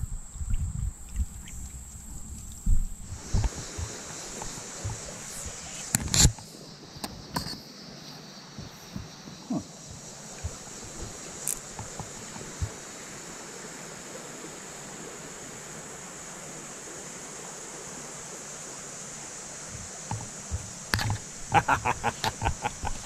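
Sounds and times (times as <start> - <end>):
creek flowing over gravel: 0.0 - 23.0
sharp clicks and splashes: 9.9 - 12.8, 19.8 - 23.0.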